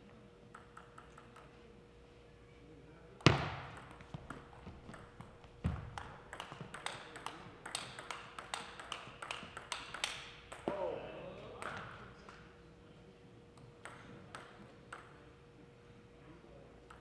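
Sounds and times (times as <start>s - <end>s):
table tennis ball clicking: 0.5s - 1.5s, 3.8s - 10.7s, 13.8s - 15.2s.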